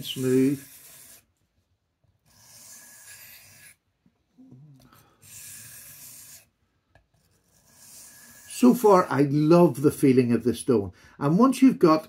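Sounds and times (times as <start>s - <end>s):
knife sharpening on whetstone: 0.0s - 1.3s, 2.2s - 3.8s, 5.2s - 6.5s.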